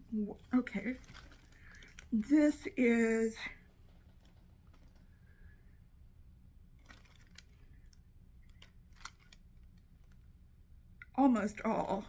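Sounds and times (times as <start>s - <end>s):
low steady hum: 0.0s - 12.0s
fabric clicks and rustles: 0.3s - 2.4s, 6.7s - 10.2s.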